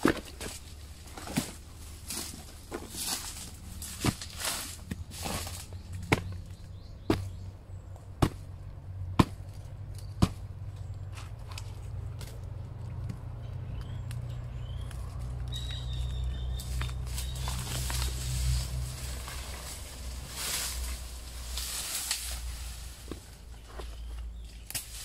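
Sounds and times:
low rumble: 0:00.7 - 0:23.7
rustling noise: 0:16.6 - 0:25.0.

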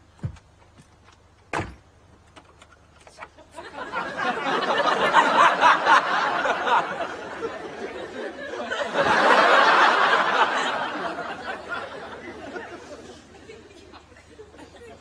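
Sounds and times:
audience laughing: 0:03.4 - 0:15.0.

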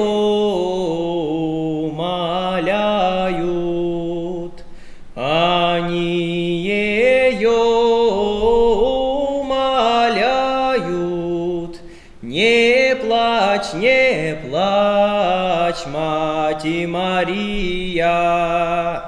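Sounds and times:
man singing unaccompanied: 0:00.0 - 0:19.0
singer breathing: 0:04.6 - 0:05.2, 0:11.8 - 0:12.2.

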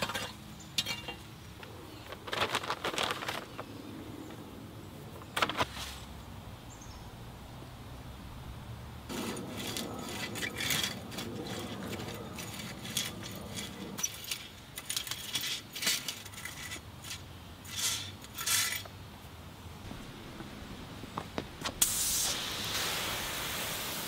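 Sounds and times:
granules pattering onto soil: 0:01.6 - 0:03.8
rake scraping through gravel: 0:09.1 - 0:18.9.

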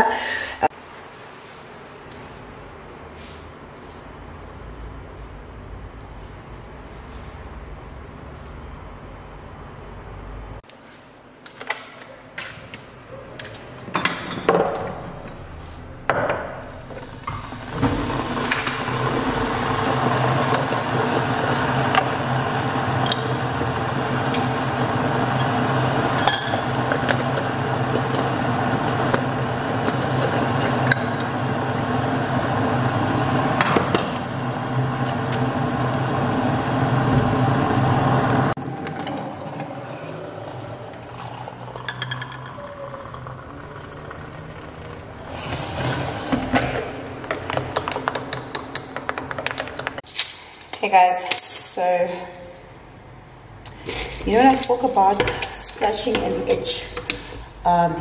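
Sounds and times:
electric kettle heating: 0:14.6 - 0:49.7, 0:53.6 - 0:58.0
kettle switching off: 0:16.1 - 0:48.8
spoon clinking glass: 0:41.7 - 0:43.1.

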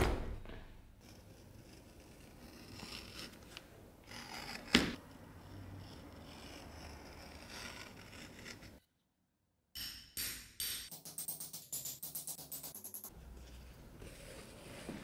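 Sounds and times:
tool scraping leather: 0:01.0 - 0:08.8.

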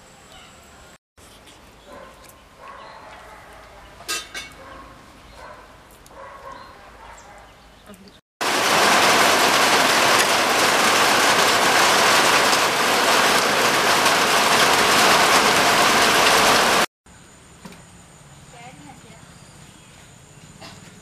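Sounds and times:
heavy rain falling: 0:08.4 - 0:16.9.

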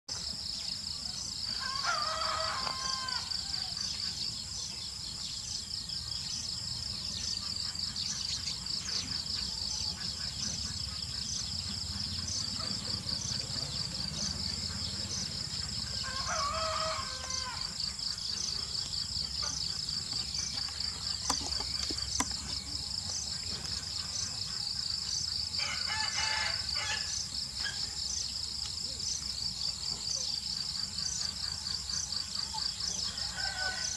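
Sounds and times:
pulsing insect chorus: 0:00.1 - 0:33.9
rooster crowing: 0:01.6 - 0:03.8, 0:16.0 - 0:17.8, 0:25.6 - 0:27.2, 0:33.2 - 0:33.9.

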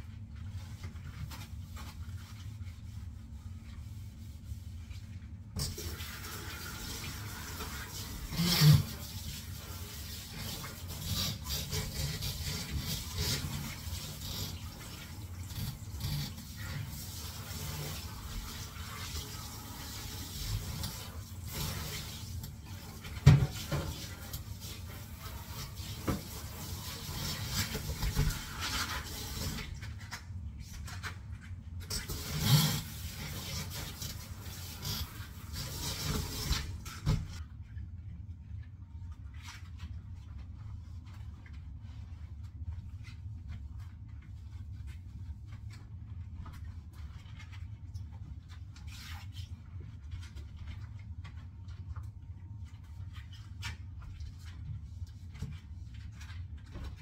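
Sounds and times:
tap water running into sink: 0:05.6 - 0:29.8.

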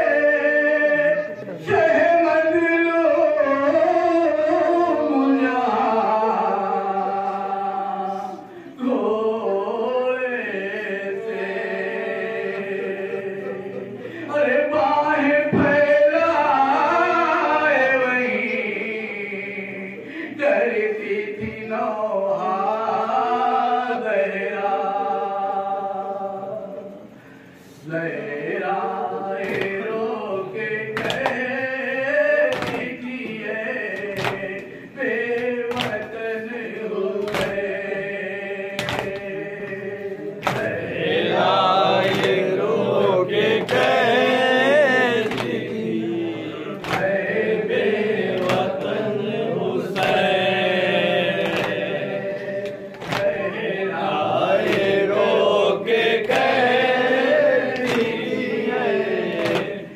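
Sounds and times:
man chanting through a microphone: 0:00.0 - 0:27.1, 0:27.8 - 0:59.9
chest beating slaps: 0:38.8 - 0:39.3, 0:40.4 - 0:40.9, 0:52.9 - 0:53.4, 0:59.4 - 0:59.8.

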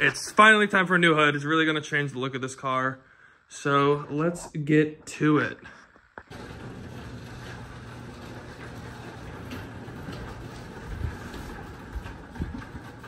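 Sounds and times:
garage door opener humming: 0:06.3 - 0:13.0.

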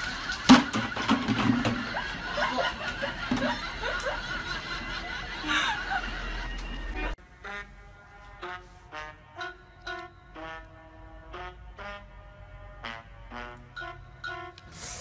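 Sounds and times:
people laughing: 0:00.0 - 0:07.2.

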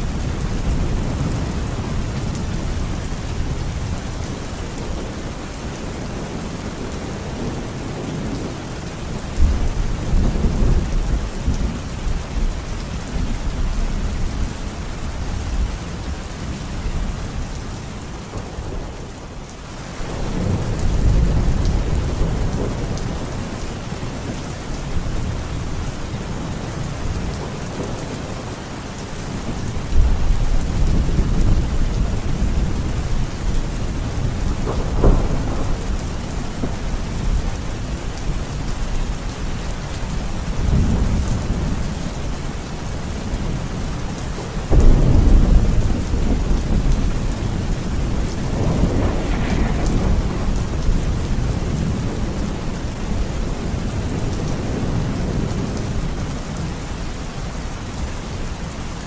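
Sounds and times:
heavy rain falling: 0:00.0 - 0:59.0
thunder rumbling: 0:20.0 - 0:56.7.

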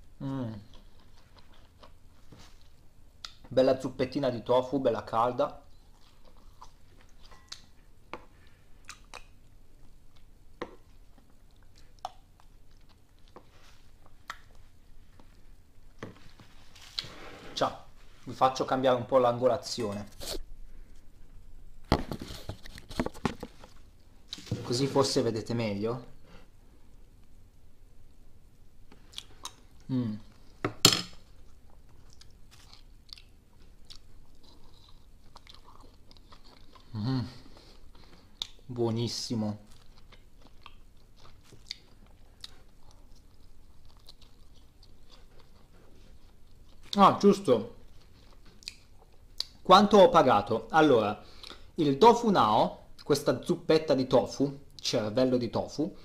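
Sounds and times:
quiet chewing: 0:00.6 - 0:03.4, 0:05.6 - 0:15.6, 0:31.3 - 0:38.7, 0:39.7 - 0:47.0, 0:47.8 - 0:49.6
close chewing: 0:31.4 - 0:38.6, 0:39.7 - 0:47.0.

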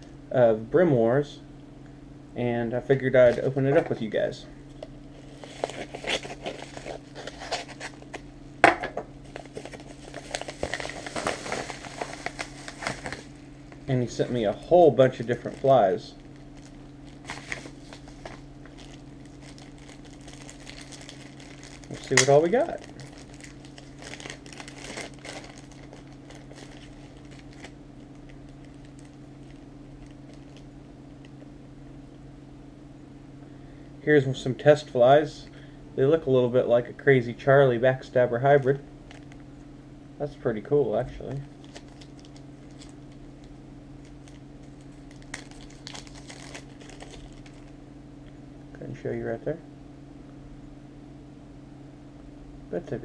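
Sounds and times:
steady low hum: 0:00.0 - 0:53.0
paper crinkling: 0:05.1 - 0:08.2, 0:09.2 - 0:30.7, 0:41.5 - 0:47.7.

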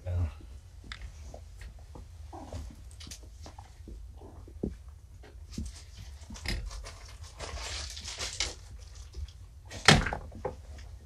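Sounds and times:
kittens scuffling on a rug: 0:01.1 - 0:09.4.

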